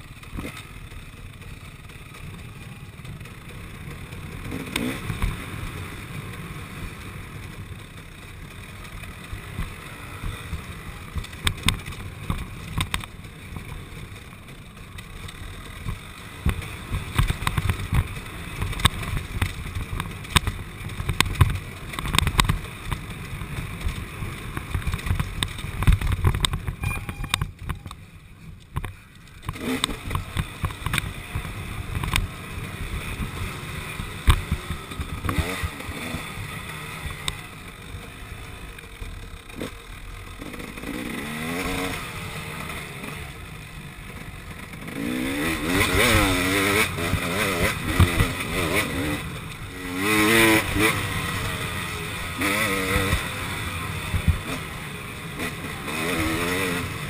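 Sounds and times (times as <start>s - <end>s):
dirt bike engine revving: 3.2s - 27.8s, 29.0s - 57.0s
bike knocks and rattles: 15.8s - 28.0s.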